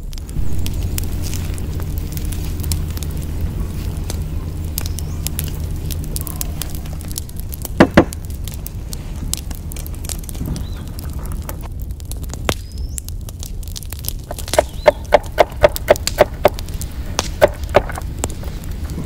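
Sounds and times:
low steady hum: 0:00.0 - 0:19.0
wood fire crackling: 0:00.0 - 0:19.0
sharp knocks: 0:07.6 - 0:08.2.

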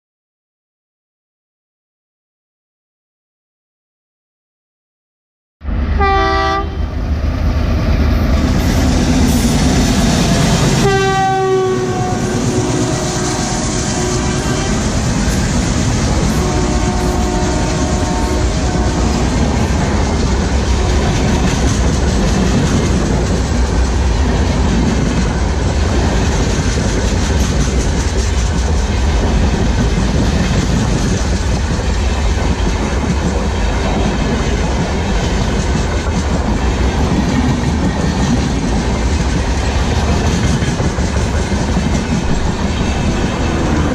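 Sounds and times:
train wheels rumbling on rails: 0:05.8 - 0:43.9.

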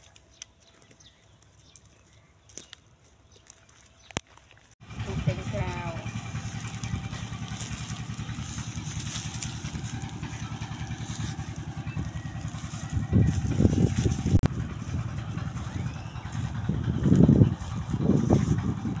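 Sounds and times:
small engine running: 0:04.8 - 0:19.0.

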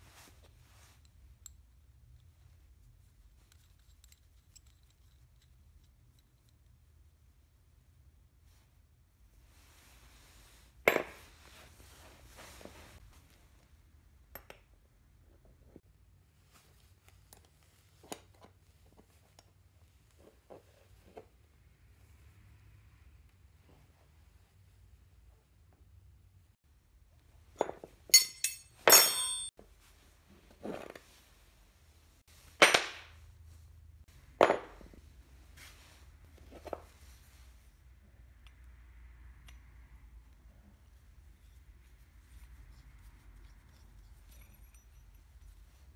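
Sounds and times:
metal wrenches clinking on wood: 0:27.6 - 0:29.5, 0:43.4 - 0:45.9.

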